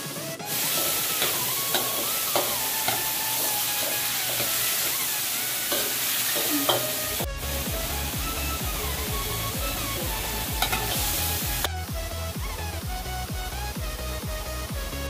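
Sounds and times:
food sizzling in oil: 0:00.4 - 0:11.7.

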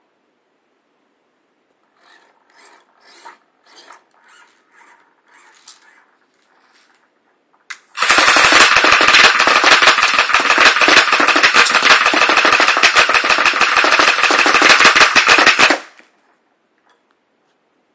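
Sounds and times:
airsoft gun full-auto burst: 0:07.9 - 0:16.0.

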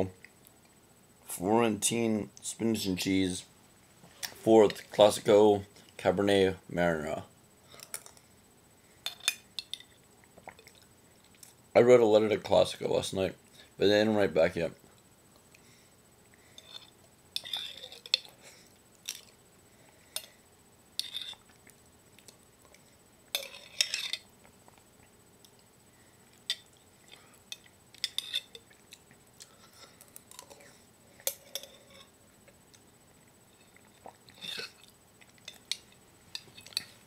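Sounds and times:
eating sounds: 0:09.8 - 0:11.6, 0:26.3 - 0:37.0
metal spoon scraping glass jar: 0:16.6 - 0:18.2, 0:23.3 - 0:24.2.

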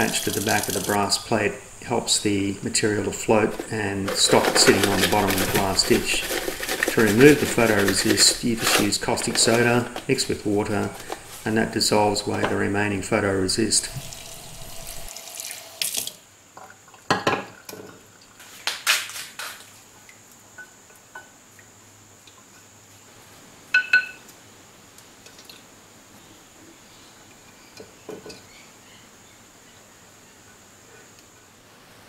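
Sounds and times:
glass dish clinking in sink: 0:23.8 - 0:24.2.

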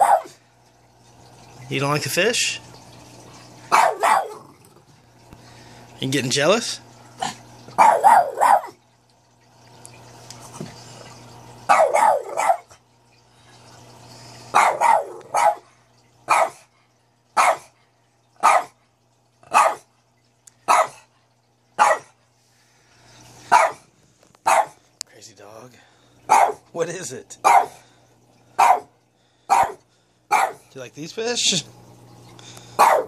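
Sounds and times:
dog barking: 0:00.0 - 0:00.4, 0:03.7 - 0:04.4, 0:07.8 - 0:08.8, 0:11.7 - 0:12.7, 0:14.5 - 0:15.7, 0:16.3 - 0:16.6, 0:17.4 - 0:17.7, 0:18.4 - 0:18.8, 0:19.5 - 0:19.8, 0:20.7 - 0:21.0, 0:21.8 - 0:22.2, 0:23.5 - 0:23.8, 0:24.4 - 0:24.8, 0:26.3 - 0:26.6, 0:27.4 - 0:27.8, 0:28.6 - 0:28.9, 0:29.5 - 0:30.7, 0:32.8 - 0:33.0.

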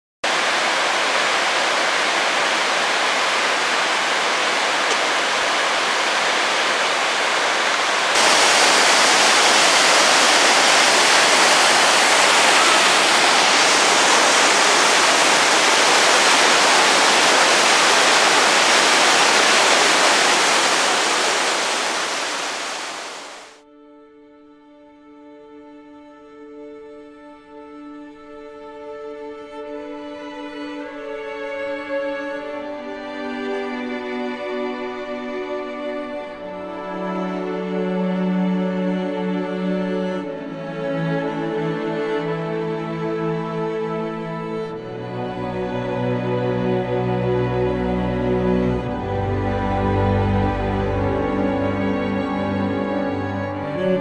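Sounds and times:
waterfall rushing: 0:00.2 - 0:23.6.

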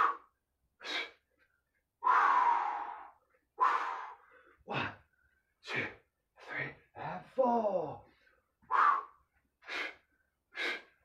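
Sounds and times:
man breathing hard: 0:00.0 - 0:07.1, 0:08.0 - 0:11.0.

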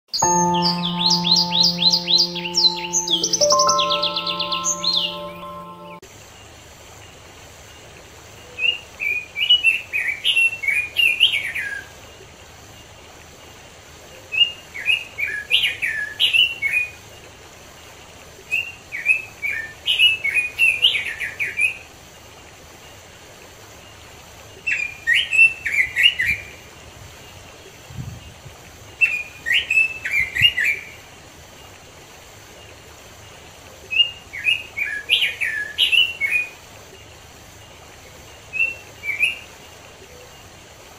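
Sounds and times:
faint rush of stream water: 0:07.0 - 0:40.9.

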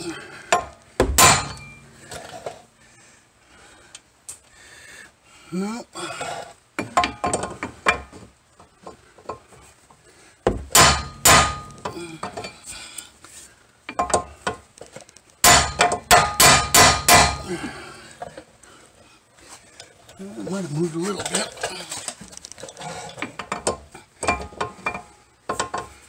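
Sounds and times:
hammer striking metal drift: 0:00.6 - 0:02.0, 0:10.7 - 0:11.9, 0:15.4 - 0:17.5.

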